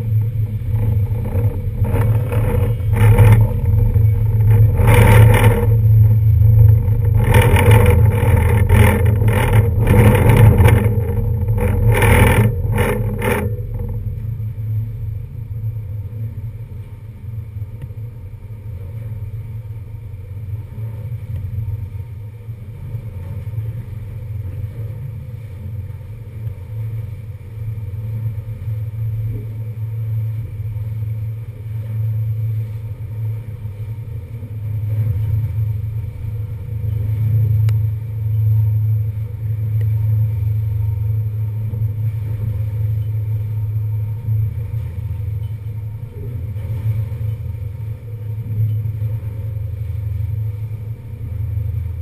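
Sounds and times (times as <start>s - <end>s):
ferry engine drone: 0.0s - 52.0s
wind buffeting microphone: 0.0s - 52.0s.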